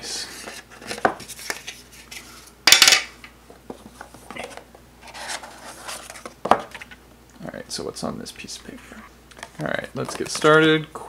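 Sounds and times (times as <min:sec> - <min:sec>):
card and paper rustling: 0:00.2 - 0:02.5, 0:03.7 - 0:07.0, 0:09.3 - 0:10.8.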